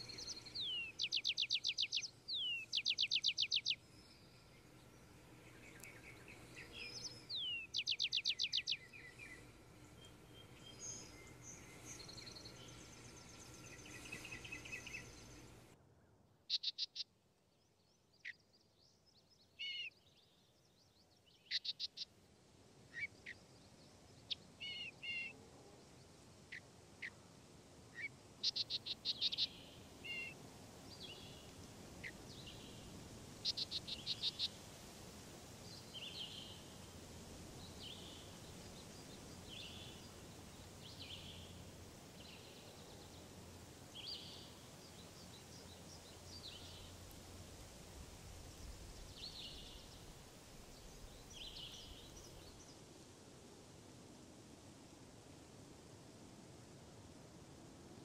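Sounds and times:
faint low hum: 0.0 - 16.5
short high chirping calls: 0.1 - 3.8, 28.0 - 30.4.

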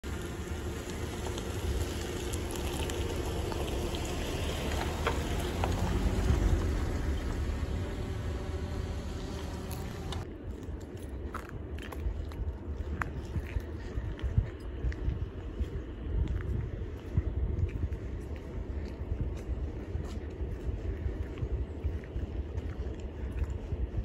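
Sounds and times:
low rumble: 0.0 - 24.0.

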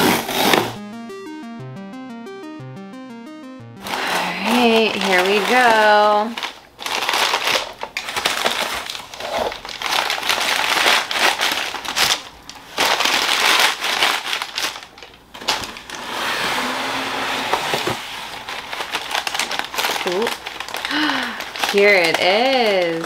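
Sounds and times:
packing paper crinkling: 3.8 - 16.0, 18.2 - 23.0.

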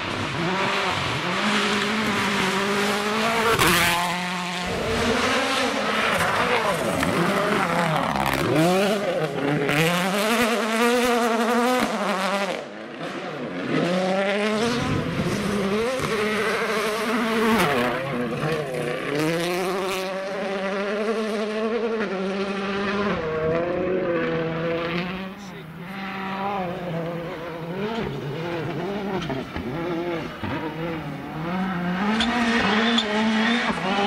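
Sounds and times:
rally car engines revving: 0.0 - 34.0.

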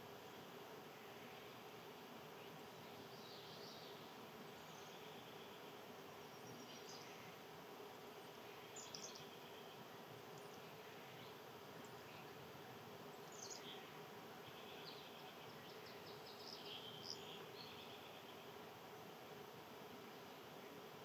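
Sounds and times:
faint steady buzz: 0.0 - 21.0
small birds chirping: 2.3 - 18.8.

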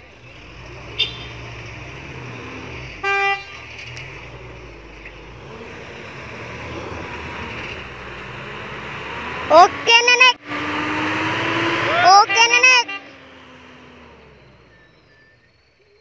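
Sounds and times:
truck engines running: 0.0 - 16.0
vehicle horn toot: 0.9 - 1.4, 3.0 - 3.7, 11.9 - 13.2.

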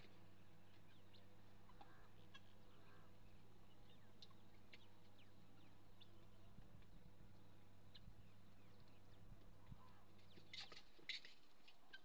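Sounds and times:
chickens clucking softly: 0.7 - 3.0.

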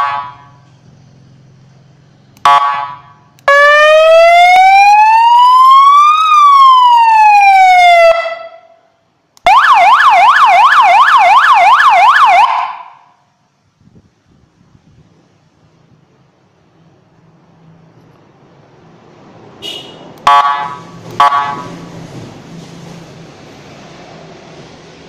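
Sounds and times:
siren wail: 2.4 - 8.8, 9.4 - 13.1
siren yelp: 2.4 - 8.8, 9.4 - 13.1, 20.3 - 21.8.

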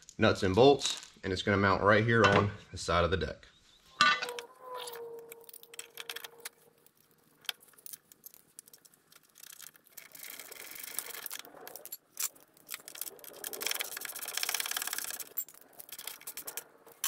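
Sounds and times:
metallic ring: 3.9 - 6.5
metal nuts and bolts clinking: 4.0 - 17.0
ratchet clicking: 8.6 - 16.7.

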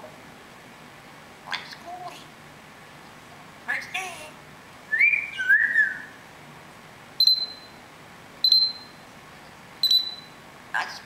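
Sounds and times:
parrot whistling: 4.9 - 6.2, 7.2 - 7.8, 8.4 - 9.0, 9.8 - 10.4.

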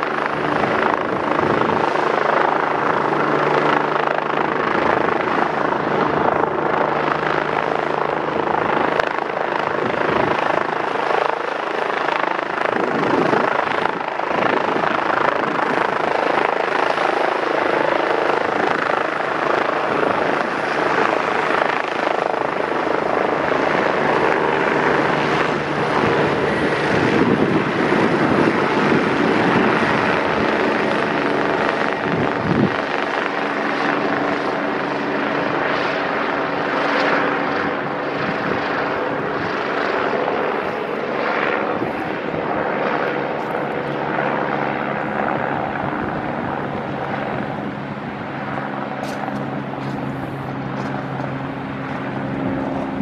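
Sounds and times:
helicopter rotor and turbine: 0.0 - 53.0.

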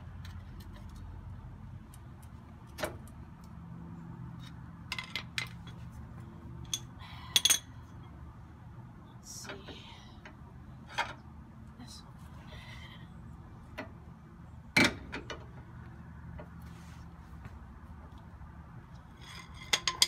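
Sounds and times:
metal tools clinking and scraping: 19.1 - 20.0.

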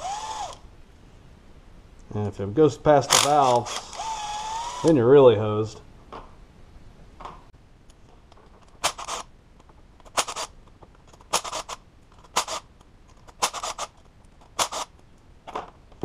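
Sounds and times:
cordless driver metallic bursts: 3.1 - 5.0.

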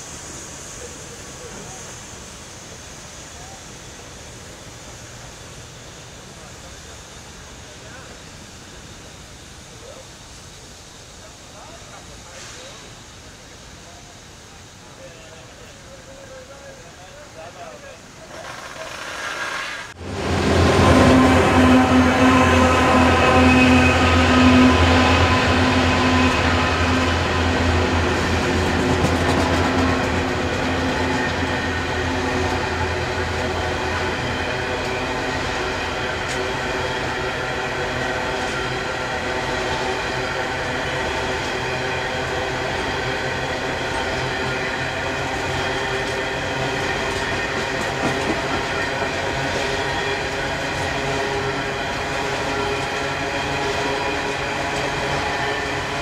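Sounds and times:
diesel locomotive engines droning: 0.0 - 56.0
wagon wheels rumbling on rail: 16.2 - 56.0.

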